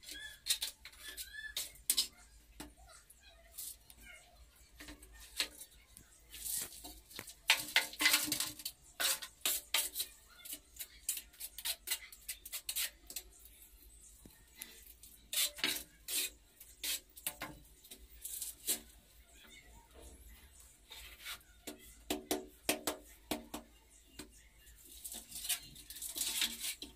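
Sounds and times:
trowel scraping in mortar: 6.3s - 13.2s, 15.2s - 17.4s.

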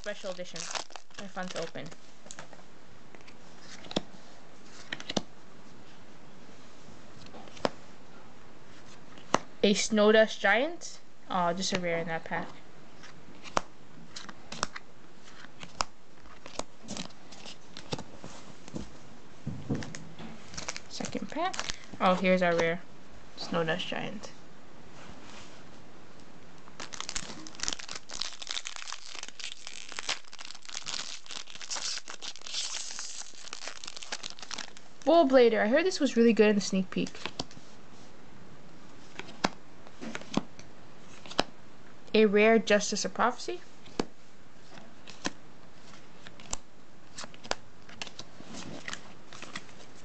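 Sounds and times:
foil wrapper crinkling and tearing: 0.0s - 1.9s, 20.5s - 21.9s, 26.8s - 35.1s.

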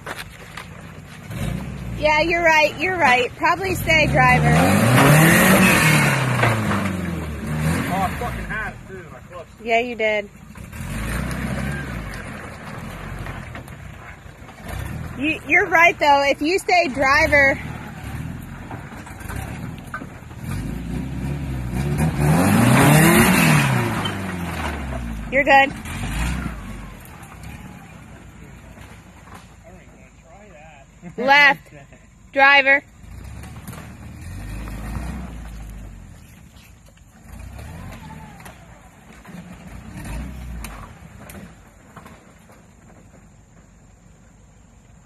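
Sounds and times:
tyres rushing: 0.0s - 30.2s, 32.3s - 44.1s
car engine revving under load: 0.8s - 29.6s, 32.4s - 43.5s.

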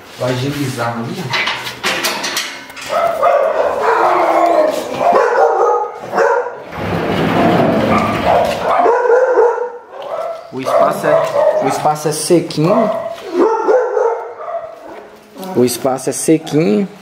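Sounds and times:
dog barking and whining: 2.8s - 6.7s, 7.9s - 11.8s, 12.7s - 15.1s.

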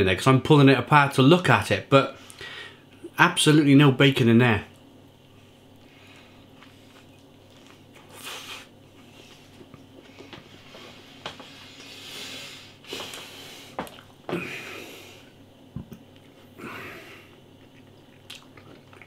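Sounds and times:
man chewing: 5.4s - 14.9s, 15.9s - 19.0s.

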